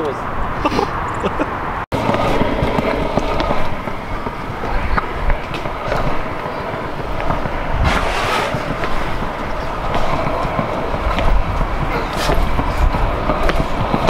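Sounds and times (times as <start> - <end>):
wind noise: 0.0 - 14.0
bike tyres rumbling on concrete: 2.0 - 14.0
brief rush: 7.8 - 9.2.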